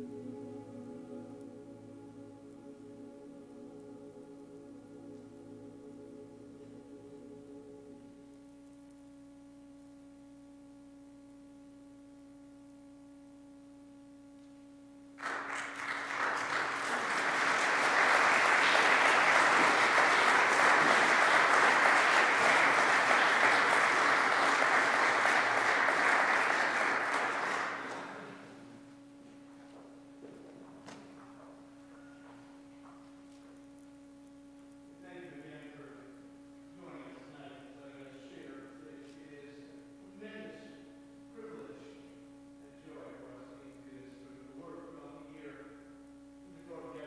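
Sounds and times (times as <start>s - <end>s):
faint steady hum: 0.0s - 47.0s
audience applauding: 15.2s - 28.5s.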